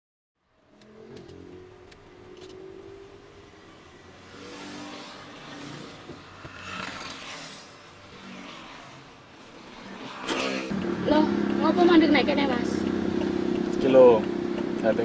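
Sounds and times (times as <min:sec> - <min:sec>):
car engine and road noise: 0:00.4 - 0:15.0.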